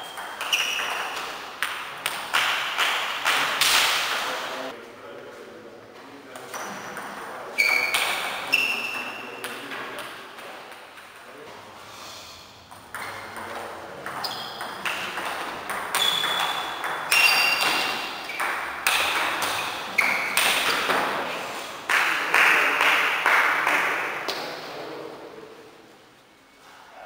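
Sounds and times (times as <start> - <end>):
table tennis ball hits: 0.0 - 4.3, 6.4 - 11.2, 12.7 - 24.6.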